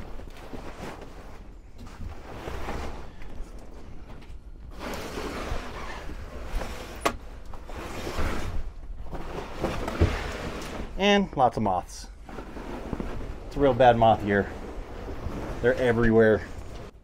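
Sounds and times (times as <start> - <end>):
canvas rustling and crumpling: 0.0 - 4.1, 12.2 - 17.0.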